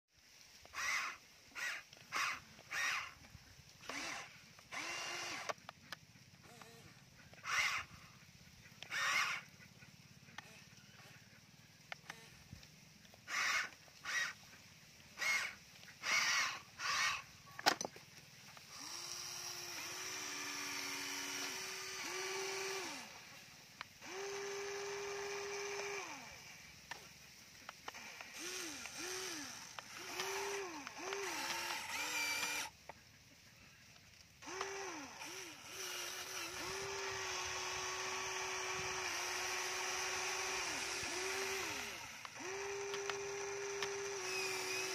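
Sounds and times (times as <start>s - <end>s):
toy excavator motors whirring: 0.2s - 44.9s
faint clicks: 8.5s - 14.4s, 23.7s - 37.1s, 40.6s - 44.9s.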